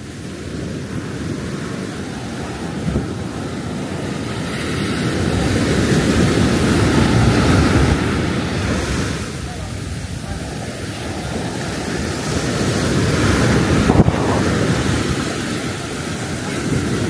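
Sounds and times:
surf washing onto beach: 0:00.0 - 0:17.0
wind buffeting microphone: 0:00.0 - 0:17.0.

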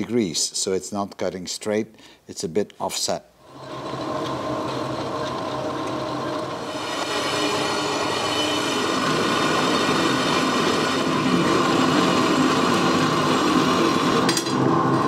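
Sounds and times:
band saw cutting steel rod: 0:03.5 - 0:15.0.

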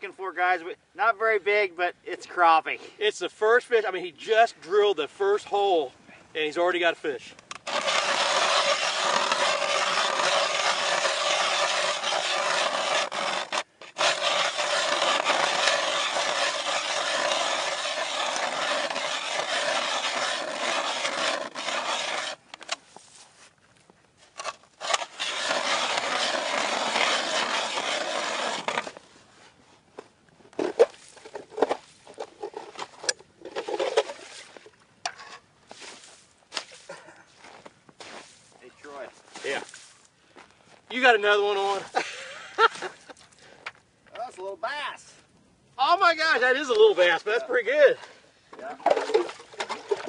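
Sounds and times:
ice auger grinding through ice: 0:07.6 - 0:22.4, 0:24.4 - 0:29.0, 0:48.9 - 0:50.0
scrapes and knocks: 0:07.6 - 0:23.1, 0:24.4 - 0:29.0.

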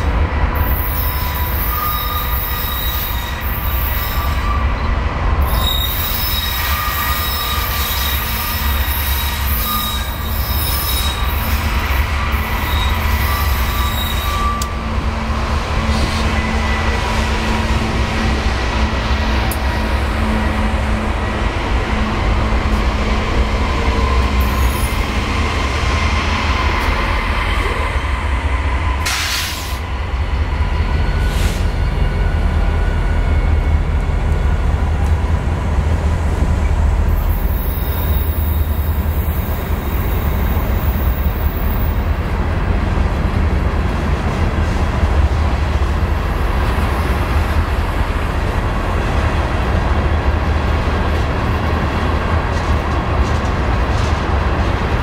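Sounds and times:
train wheels rumbling on rail: 0:00.0 - 0:55.0
high wheel squeal: 0:00.6 - 0:04.9, 0:05.5 - 0:14.8, 0:37.2 - 0:42.0.

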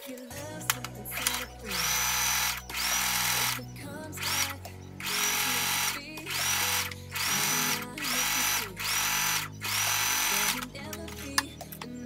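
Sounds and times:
background music: 0:00.0 - 0:12.0
sewing machine motor whining: 0:01.2 - 0:03.6, 0:04.2 - 0:10.7.

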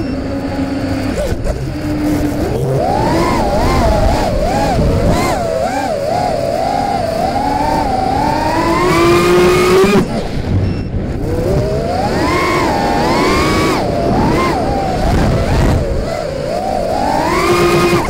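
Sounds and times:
quadcopter motors whining: 0:00.0 - 0:18.0.

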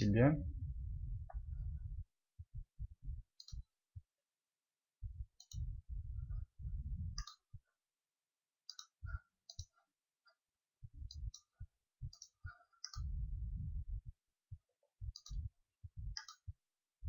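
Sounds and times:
dull low rumbles: 0:00.0 - 0:03.4, 0:05.0 - 0:07.2, 0:13.0 - 0:14.2, 0:15.0 - 0:16.2
computer mouse buttons clicking: 0:03.4 - 0:03.6, 0:05.4 - 0:05.6, 0:07.2 - 0:07.4, 0:08.7 - 0:09.7, 0:12.1 - 0:13.1, 0:15.2 - 0:15.4, 0:16.2 - 0:16.5.

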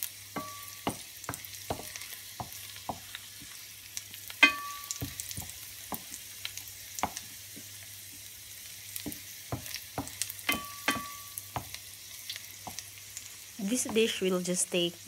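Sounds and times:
garlic sizzling in oil: 0:00.0 - 0:15.0
pan ringing: 0:04.4 - 0:05.0.

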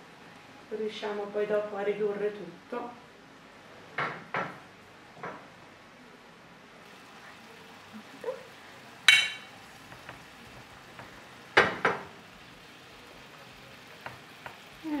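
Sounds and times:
faint sizzle from pan: 0:00.0 - 0:03.0, 0:06.8 - 0:15.0
cutlery clinking on pan and plate: 0:09.1 - 0:10.2.

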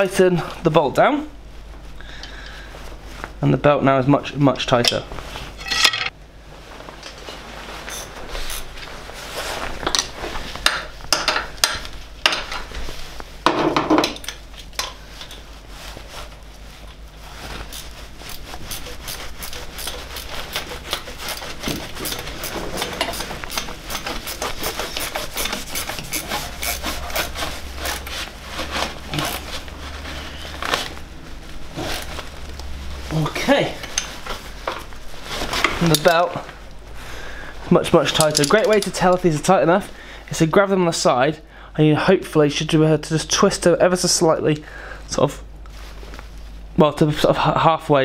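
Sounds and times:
metal tools clinking and scraping: 0:05.6 - 0:06.1, 0:38.0 - 0:39.2.

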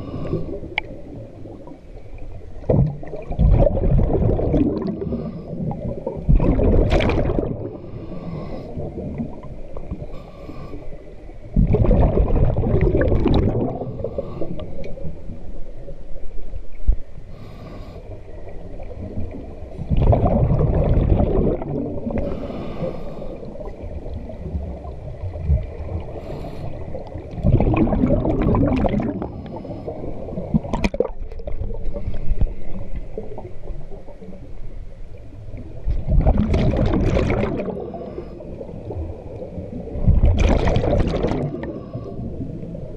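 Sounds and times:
gurgling exhaled bubbles: 0:02.6 - 0:10.0, 0:11.5 - 0:14.7, 0:18.8 - 0:34.0, 0:35.8 - 0:42.9
hissing regulator breaths: 0:22.2 - 0:23.6.

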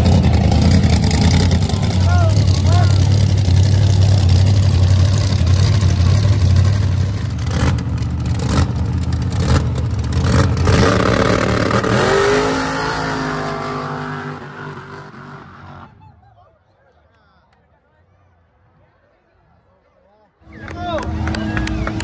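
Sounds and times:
vehicle engine running loud: 0:00.0 - 0:15.9, 0:20.5 - 0:22.0.

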